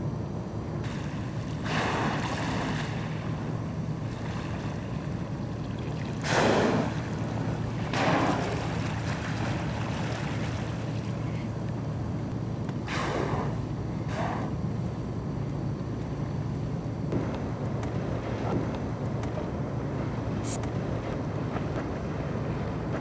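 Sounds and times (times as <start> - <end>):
whales blowing: 0.8 - 5.2, 5.9 - 11.5, 12.8 - 14.6.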